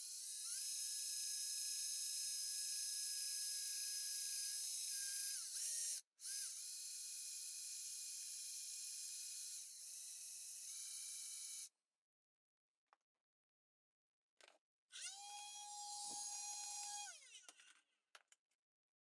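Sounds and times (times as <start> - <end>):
cordless drill whining into steel: 0.0 - 11.7, 14.9 - 17.7.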